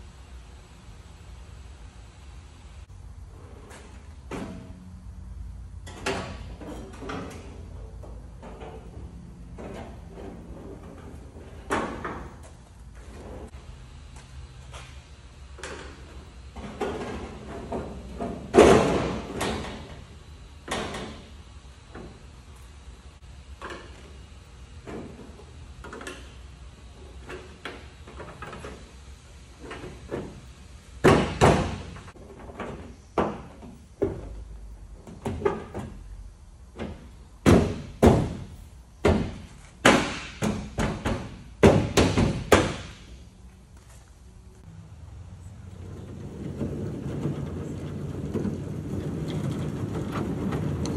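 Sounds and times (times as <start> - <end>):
hollow bangs on car door: 37.4 - 43.0.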